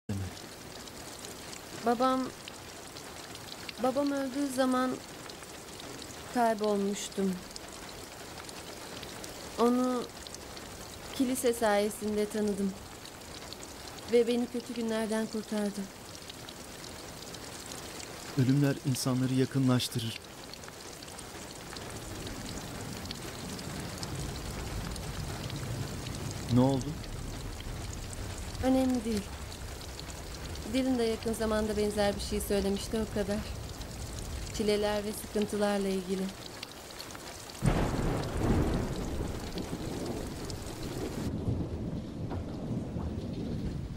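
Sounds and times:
raindrop ticks: 0.1 - 43.9
steady rain: 0.1 - 43.9
thunder rumbling: 21.8 - 36.5, 37.6 - 43.9.

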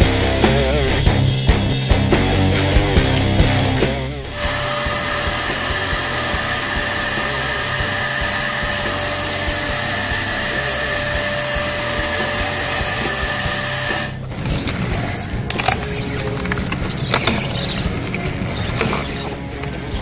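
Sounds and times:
paint sprayer hissing: 4.3 - 20.0.

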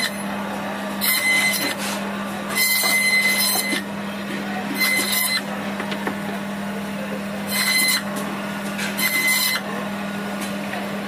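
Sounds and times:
saw blade cutting fish: 0.0 - 0.3, 0.9 - 5.6, 7.4 - 9.8
band saw humming: 0.0 - 11.0.

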